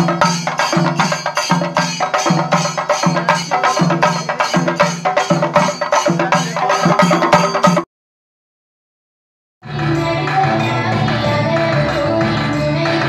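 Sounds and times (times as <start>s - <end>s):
barrel drums beaten with sticks: 0.0s - 7.8s
deep drum beat: 0.0s - 7.8s.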